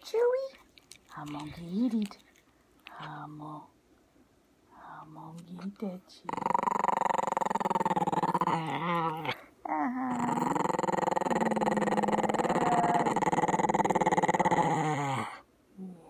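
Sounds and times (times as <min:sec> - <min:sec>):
dog growling: 0:06.2 - 0:16.0.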